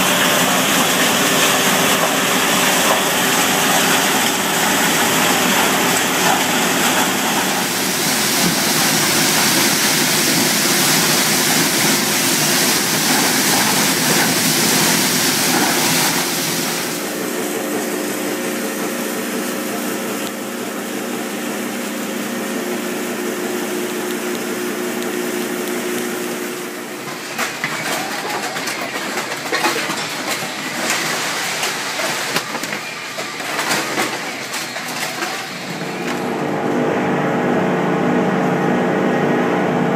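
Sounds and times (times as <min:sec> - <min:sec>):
machinery hiss and hum: 0:00.0 - 0:39.8
motor hum: 0:14.6 - 0:27.2.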